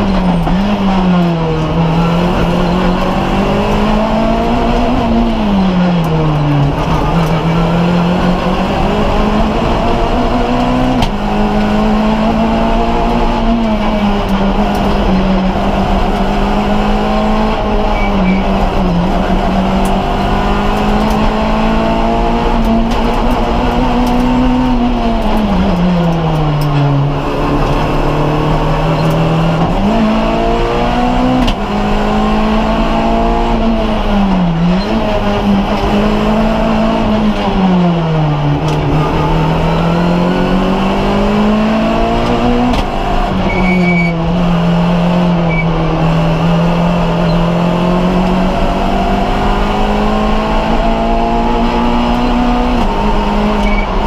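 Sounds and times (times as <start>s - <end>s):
gear change: 0.0s - 54.0s
rally car engine revving: 0.0s - 54.0s.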